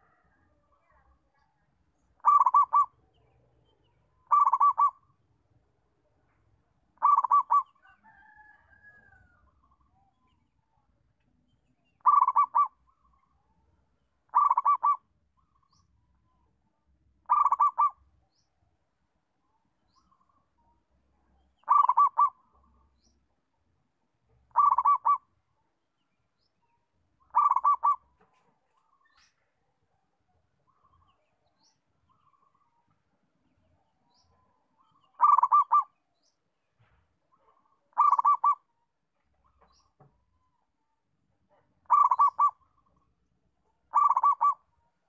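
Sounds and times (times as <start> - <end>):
dove cooing: 2.2 - 3.0, 4.3 - 5.0, 7.0 - 7.8, 12.0 - 12.8, 14.3 - 15.0, 17.3 - 18.0, 21.6 - 22.4, 24.5 - 25.3, 27.3 - 28.1, 35.2 - 36.0, 37.3 - 38.7, 41.8 - 42.6, 43.9 - 44.7.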